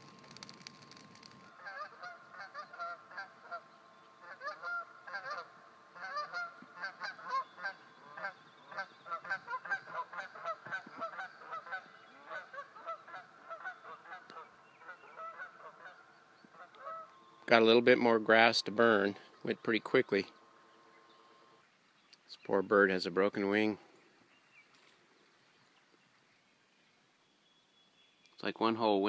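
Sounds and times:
geese honking: 0.3 - 17.7.

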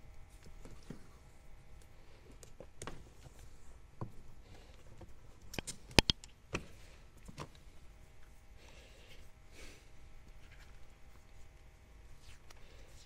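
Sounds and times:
electrical tape handling clicks: 5.5 - 6.3
tape snapping: 5.5 - 6.3.

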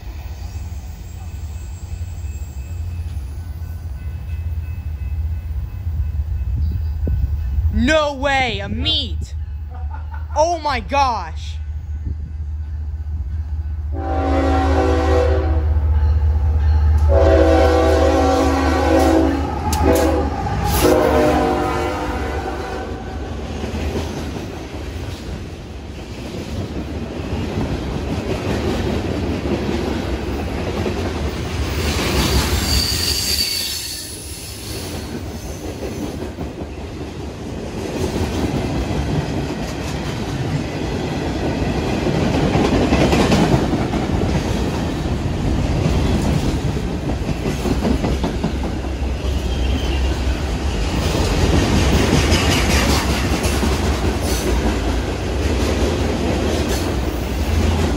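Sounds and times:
train wheels rumbling on rails: 11.9 - 57.9
high wheel squeal: 32.5 - 34.6
clickety-clack over rail joints: 35.0 - 49.5, 50.9 - 57.9.

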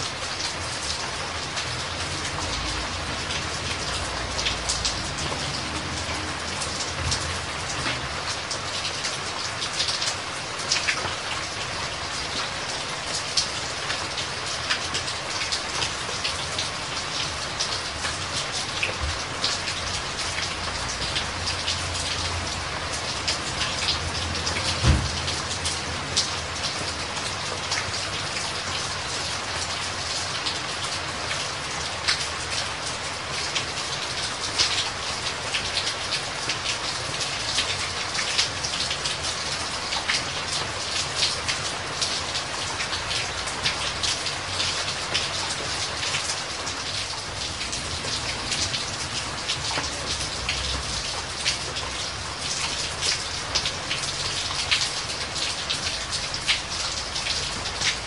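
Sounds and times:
pattering water drips and splashes: 0.0 - 58.0
dull low thump: 24.8 - 25.2.

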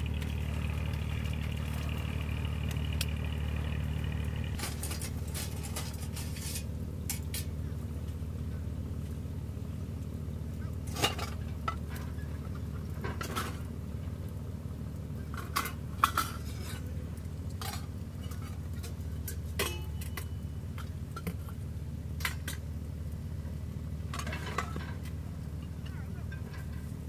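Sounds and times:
metal cookware clinking: 17.6 - 20.4.

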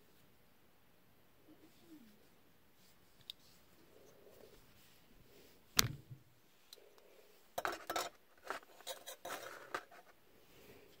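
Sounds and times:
metallic clicks and scrapes: 7.6 - 10.1.

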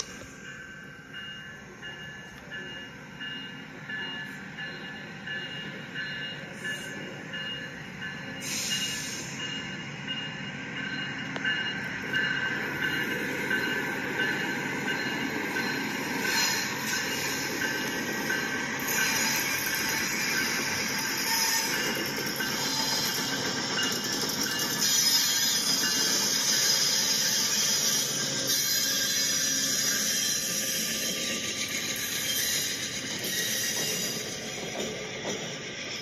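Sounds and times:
train rolling on rails: 0.0 - 36.0
high pulsing wheel squeal: 12.2 - 34.6.

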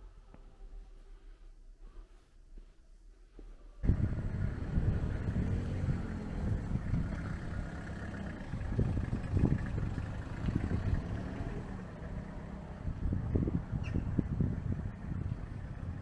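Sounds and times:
car engine rumble: 3.8 - 16.0
road noise: 3.8 - 16.0.

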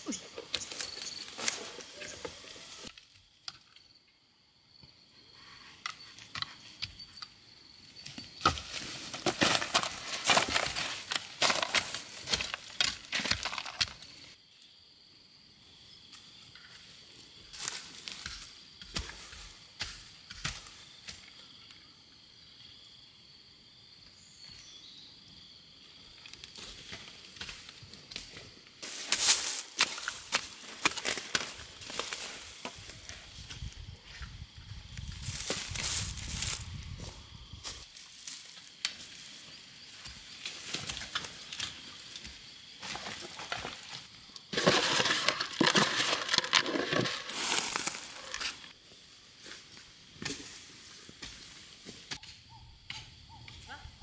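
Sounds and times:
footsteps in dry bamboo litter: 0.2 - 3.0, 8.3 - 14.4, 17.5 - 19.7, 26.2 - 52.2
seed rattling in plastic container: 44.6 - 48.5.

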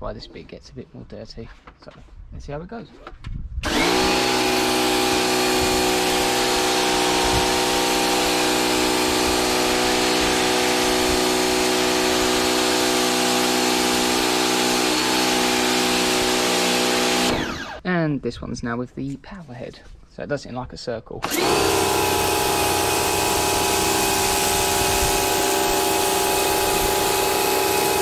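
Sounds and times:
pressure washer motor hum: 3.6 - 17.8, 21.2 - 28.0.

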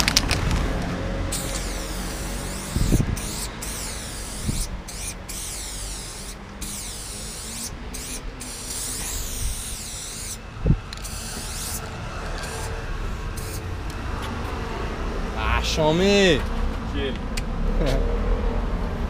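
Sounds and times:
spray paint can hissing: 1.3 - 13.7.

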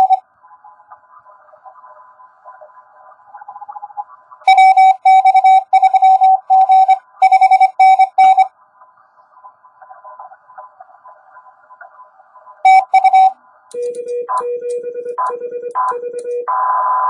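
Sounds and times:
morse code beeps: 0.0 - 0.2, 4.5 - 8.5, 12.7 - 16.5
faint radio receiver hiss: 0.0 - 4.5, 8.3 - 13.9.

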